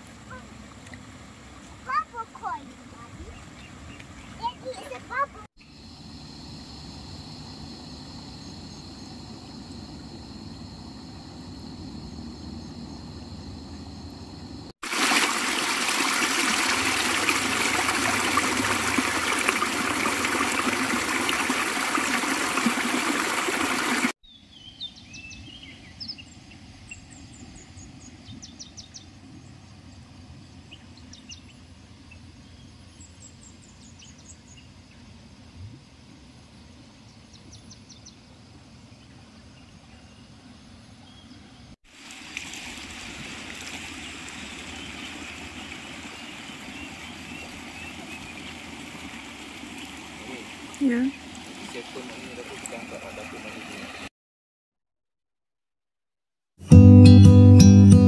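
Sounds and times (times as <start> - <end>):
water rushing down stone channel: 14.8 - 24.2, 41.9 - 54.1.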